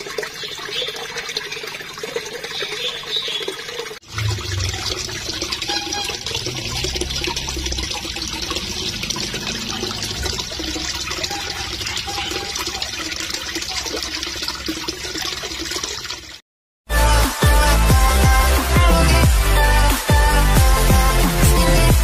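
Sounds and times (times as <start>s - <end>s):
fish splashing in water: 0.0s - 16.4s.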